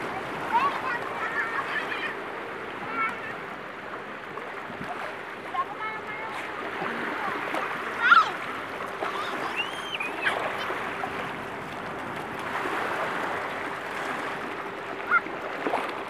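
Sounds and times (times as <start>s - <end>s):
small waves washing on sand: 0.0s - 16.0s
water swishing around legs: 0.0s - 16.0s
children calling: 6.3s - 11.1s, 15.0s - 15.4s.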